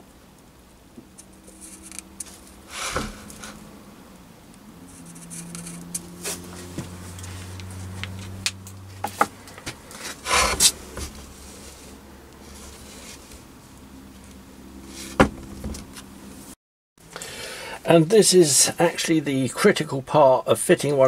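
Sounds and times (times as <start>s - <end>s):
metal scraping on wood board: 1.2s - 3.6s, 4.9s - 7.3s, 9.0s - 13.4s.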